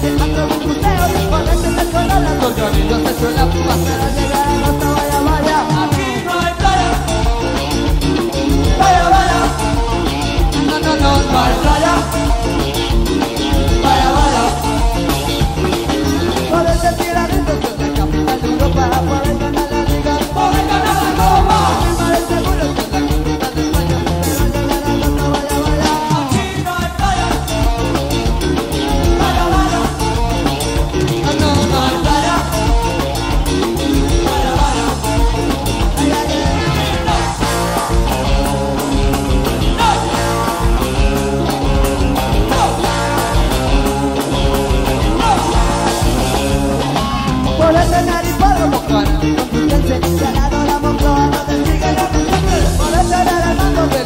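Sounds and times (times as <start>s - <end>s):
person singing: 0.0s - 7.4s, 8.5s - 10.0s, 10.6s - 12.7s, 13.5s - 15.0s, 16.0s - 27.7s, 28.8s - 30.4s, 31.1s - 33.0s, 34.0s - 37.9s, 39.6s - 40.8s, 42.3s - 43.6s, 44.9s - 46.0s, 47.6s - 54.0s
bass guitar: 0.0s - 54.0s
drum kit: 0.0s - 54.0s
electric guitar: 0.0s - 54.0s.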